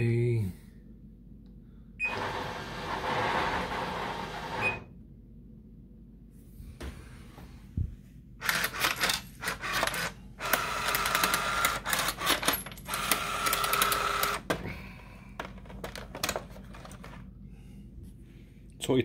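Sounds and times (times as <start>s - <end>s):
vending machine motor running: 2.0s - 5.0s, 8.4s - 14.7s
vending machine clattering and clicks: 15.3s - 17.2s.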